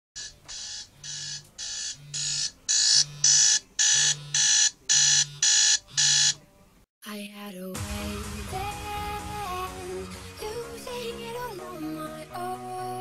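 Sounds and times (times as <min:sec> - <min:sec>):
phone alarm ringing: 0:00.2 - 0:06.4.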